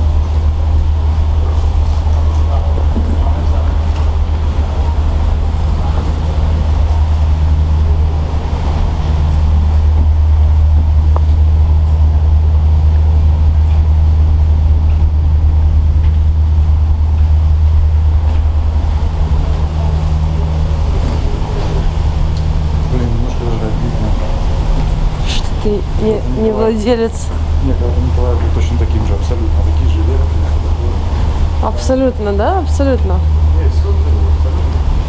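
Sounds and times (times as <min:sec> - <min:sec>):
faint hum: 0:00.0 - 0:35.0
low rumble: 0:00.0 - 0:35.0.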